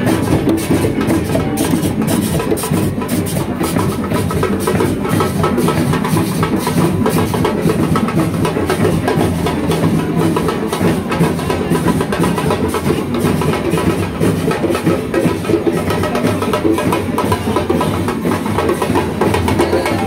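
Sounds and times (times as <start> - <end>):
parade music with drums: 0.0 - 20.0.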